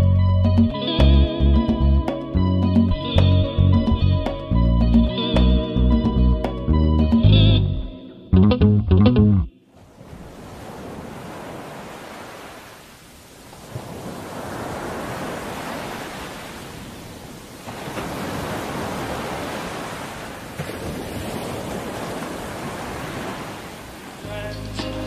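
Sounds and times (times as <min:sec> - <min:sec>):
pitched music: 0:00.0 - 0:09.6.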